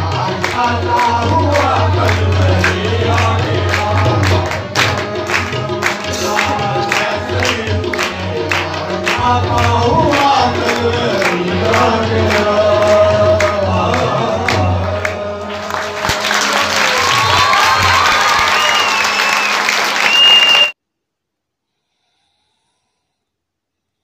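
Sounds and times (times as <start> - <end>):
harmonium: 0.0 - 16.7
man singing: 0.0 - 17.2
group voices singing: 0.0 - 18.0
tabla beat: 0.0 - 19.2
applause: 0.1 - 20.8.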